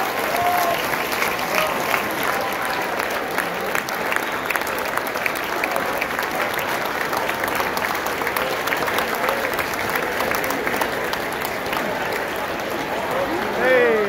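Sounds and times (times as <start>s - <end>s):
audience clapping: 0.0s - 14.0s.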